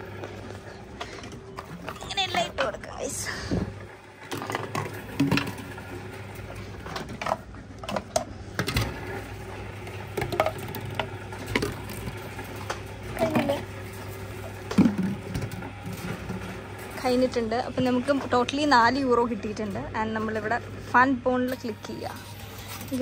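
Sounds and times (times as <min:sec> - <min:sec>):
plastic bottles knocking and clicking: 0:10.1 - 0:13.6, 0:14.7 - 0:16.4.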